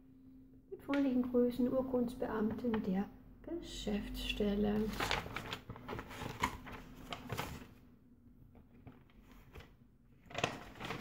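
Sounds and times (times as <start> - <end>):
paper rustling: 4.7 - 7.8, 8.6 - 11.0.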